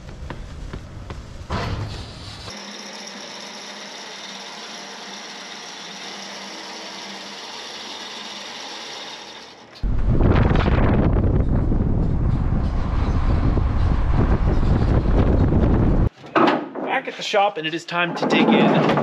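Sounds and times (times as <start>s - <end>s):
wind and road rumble: 0.0s - 2.5s, 9.8s - 16.1s
electric winch running: 2.5s - 9.8s.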